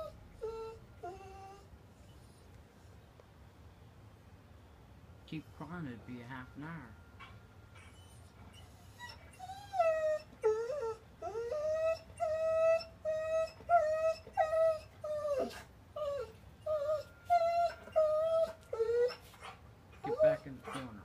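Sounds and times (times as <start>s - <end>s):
dog whining: 0.0s - 2.5s, 7.2s - 21.0s.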